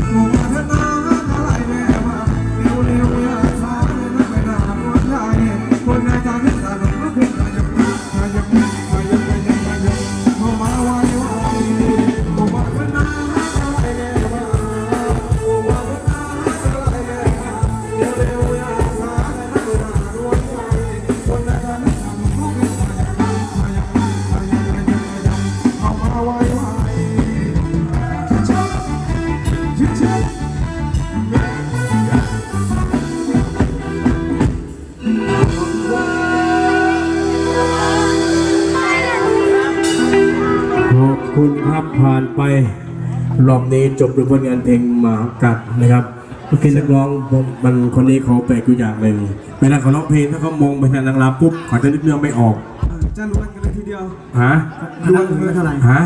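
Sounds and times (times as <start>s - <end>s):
steady drum beat: 0.0s - 40.8s, 52.8s - 53.9s
person singing: 0.0s - 43.3s
live band dance music: 0.0s - 56.0s.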